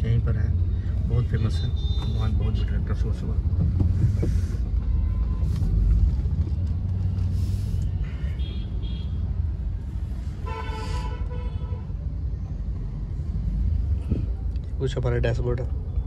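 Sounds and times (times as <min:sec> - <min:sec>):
engine and traffic rumble: 0:00.0 - 0:16.0
car horns honking: 0:01.3 - 0:02.5, 0:10.4 - 0:11.9.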